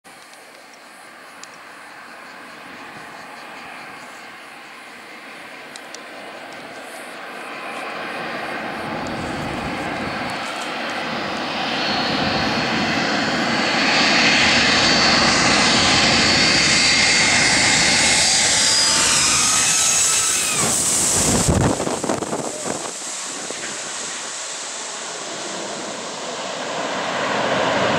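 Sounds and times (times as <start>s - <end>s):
jet airliner passing overhead: 0.1s - 27.9s
jet engine whining tone: 0.1s - 27.9s.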